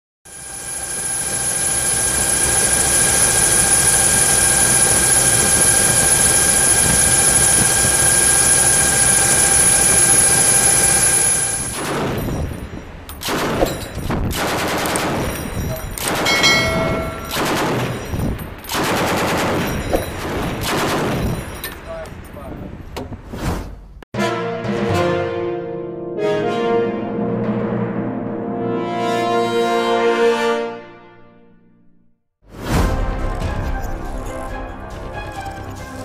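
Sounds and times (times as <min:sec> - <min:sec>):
helicopter turbine engine whine: 0:00.3 - 0:11.8
machine gun bursts: 0:13.2 - 0:16.4, 0:17.3 - 0:21.6.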